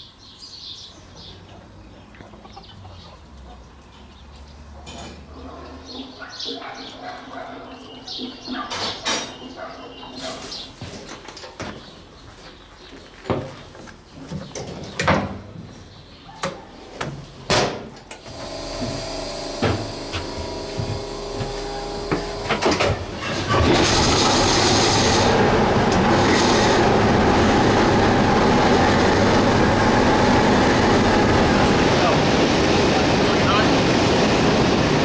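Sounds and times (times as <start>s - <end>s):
diesel locomotive engine running: 18.2s - 35.0s
steady hum: 18.2s - 35.0s.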